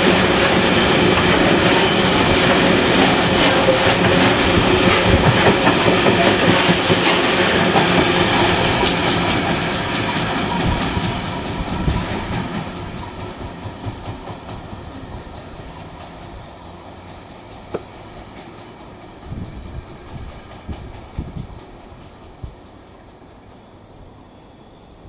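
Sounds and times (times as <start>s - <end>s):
freight wagon wheels clickety-clack: 0.0s - 22.6s
faint high-pitched squeal: 22.1s - 25.0s.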